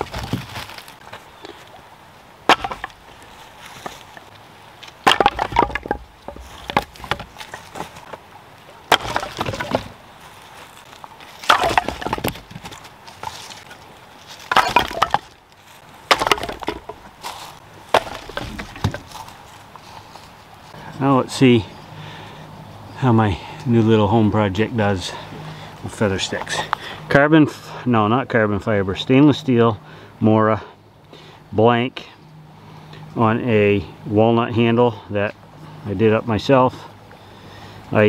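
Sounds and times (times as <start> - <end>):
firewood clattering onto woodpile: 0.0 - 1.2, 2.5 - 4.2, 4.8 - 8.2, 8.8 - 10.0, 10.8 - 15.4, 16.0 - 19.4.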